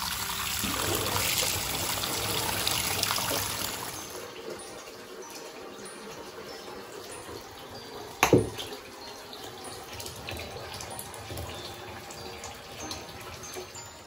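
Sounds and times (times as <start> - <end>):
tap water filling bathtub: 0.0 - 14.0
object plopping into water: 8.2 - 8.6.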